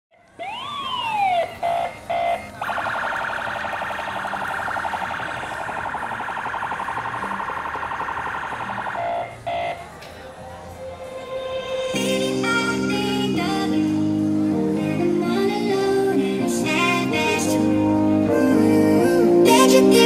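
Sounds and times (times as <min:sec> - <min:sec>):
car alarm whooping and beeping: 0:00.4 - 0:09.8.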